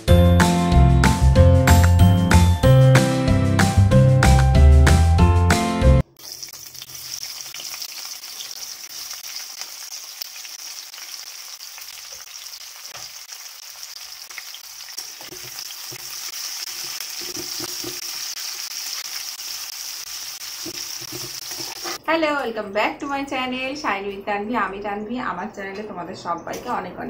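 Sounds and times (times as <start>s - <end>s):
onions sizzling in hot oil: 6.0s - 22.0s.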